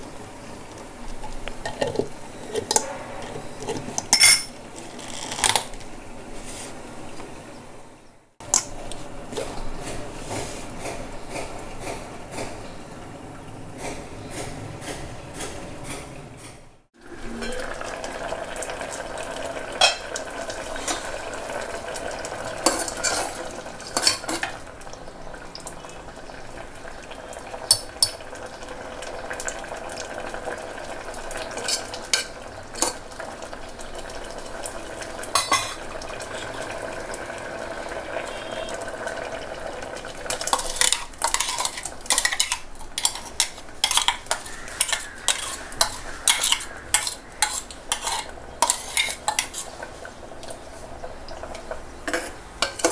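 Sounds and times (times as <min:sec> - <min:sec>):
spoon scraping steel jar: 0:01.8 - 0:04.5, 0:40.5 - 0:49.7
spoon clinking against metal pot: 0:04.1 - 0:04.6, 0:40.5 - 0:49.6.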